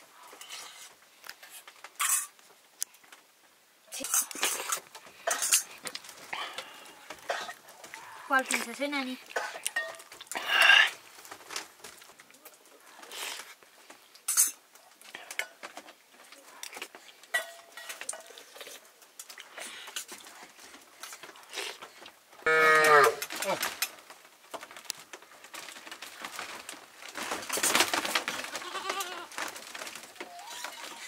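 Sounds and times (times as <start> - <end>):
livestock animal calling: 22.5 - 23.2, 30.2 - 31.0.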